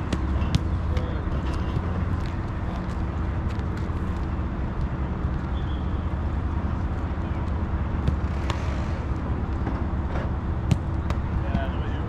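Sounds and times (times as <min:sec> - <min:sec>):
soccer balls being kicked: 0:00.0 - 0:05.8, 0:07.4 - 0:08.6, 0:10.6 - 0:12.0
low outdoor rumble: 0:00.0 - 0:12.0.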